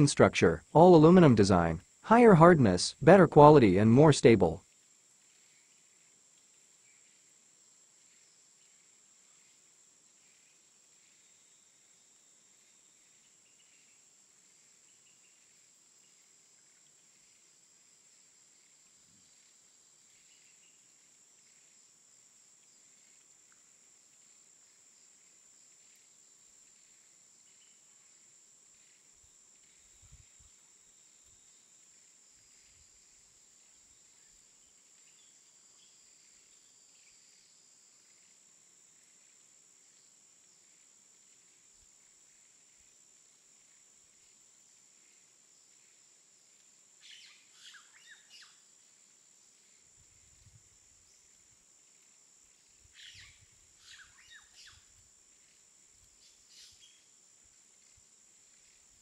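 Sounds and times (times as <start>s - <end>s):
faint high-pitched tone: 0.0s - 4.6s.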